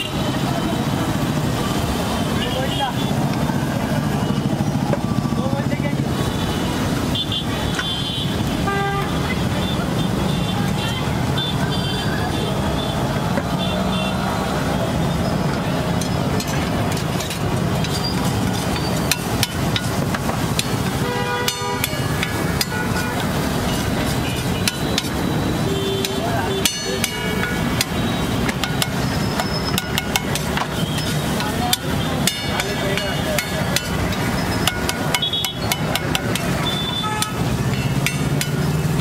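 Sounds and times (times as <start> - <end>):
background din: 15.4 - 39.0
metal spatula clinking on griddle: 26.0 - 38.9.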